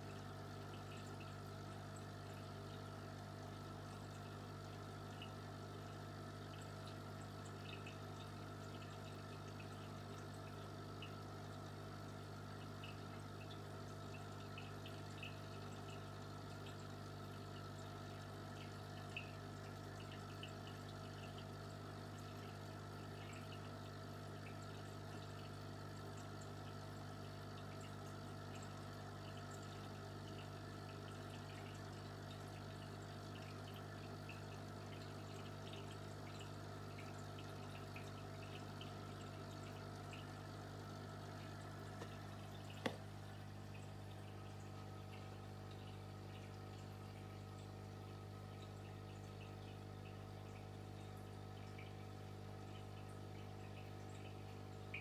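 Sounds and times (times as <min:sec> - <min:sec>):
aquarium pump humming: 0:00.0 - 0:55.0
tiny bubbling ticks: 0:00.0 - 0:55.0
water trickling: 0:00.0 - 0:55.0.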